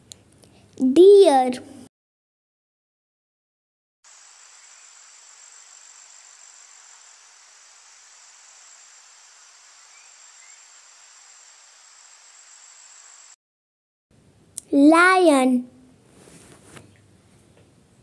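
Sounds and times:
faint background hiss: 0.0 - 1.9, 14.1 - 18.0
insects trilling: 4.1 - 13.4
short rising chirps: 7.9 - 13.4.

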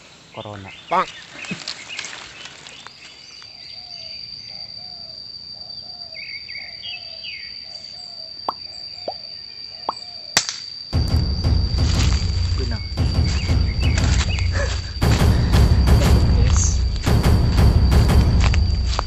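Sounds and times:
bird calls: 0.0 - 10.4, 11.5 - 17.2
high insect whine: 0.0 - 19.0
loud rush of noise: 11.0 - 19.0.

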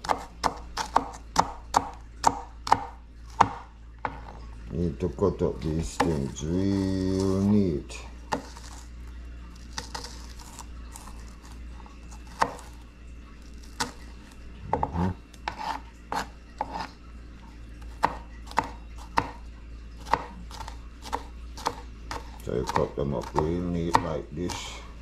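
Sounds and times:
knife chopping on plastic board: 0.0 - 4.3, 8.3 - 8.8, 12.3 - 12.8, 14.7 - 16.9, 17.9 - 19.4, 20.0 - 24.7.

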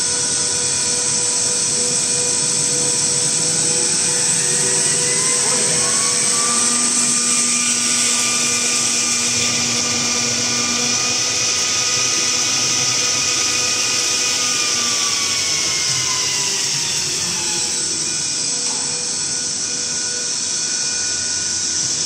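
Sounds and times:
mixer motor whine: 0.0 - 22.0.

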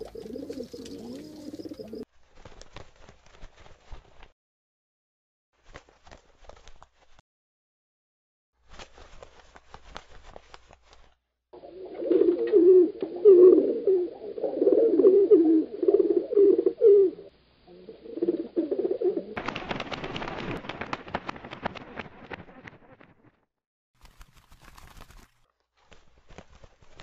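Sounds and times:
pigeons cooing: 0.0 - 2.0, 11.6 - 19.4
rustling with rapid clicks: 2.2 - 4.3, 8.6 - 11.2, 19.4 - 23.4, 24.0 - 27.0.

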